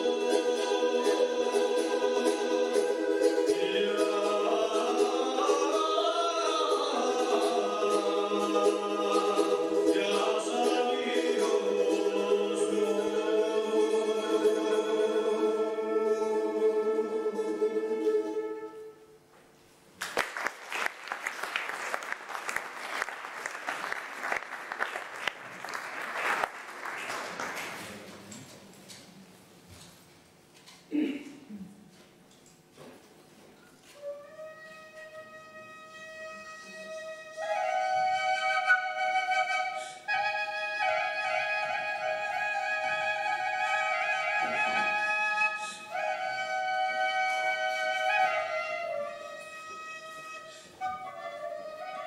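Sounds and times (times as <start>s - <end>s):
audience applauding: 20.0s - 28.2s.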